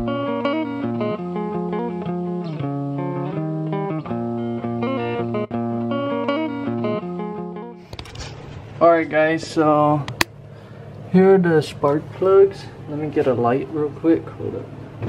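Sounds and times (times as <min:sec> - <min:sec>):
plucked guitar music: 0:00.0 - 0:08.6.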